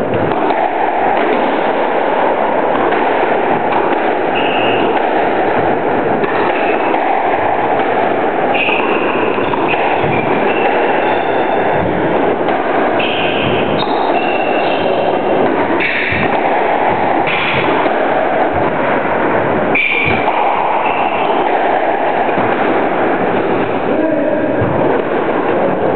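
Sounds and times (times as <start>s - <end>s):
steady rushing noise: 0.0s - 25.9s
shoes squeaking on wooden floor: 13.0s - 15.6s.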